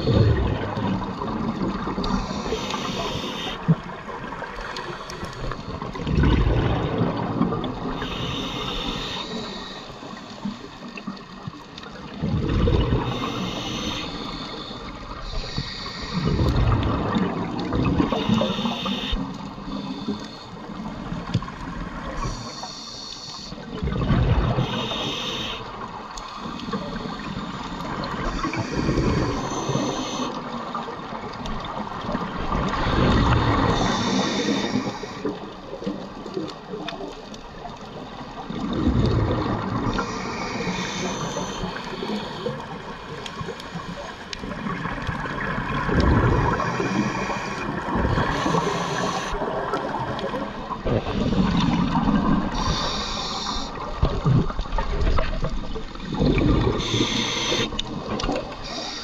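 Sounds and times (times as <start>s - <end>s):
gurgling exhaled bubbles: 0.0s - 20.0s, 23.6s - 59.0s
hissing regulator inhalations: 2.0s - 3.7s, 8.0s - 10.6s, 13.0s - 16.4s, 18.0s - 20.6s, 22.2s - 23.7s, 24.6s - 30.5s, 33.6s - 35.5s, 39.9s - 44.2s, 46.5s - 49.5s, 52.4s - 53.9s, 56.7s - 57.8s, 58.4s - 59.0s.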